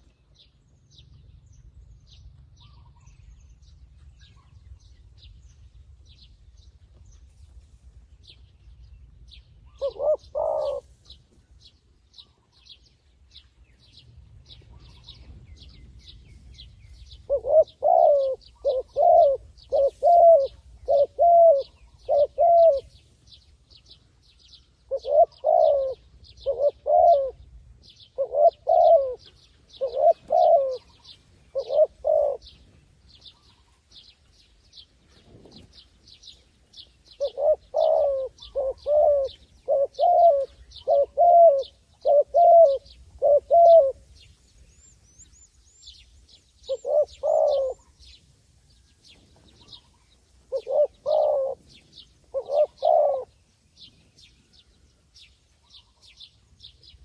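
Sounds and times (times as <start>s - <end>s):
dove cooing: 9.6s - 10.9s, 17.0s - 23.0s, 24.8s - 33.8s, 37.1s - 44.2s, 46.6s - 48.2s, 49.1s - 53.9s.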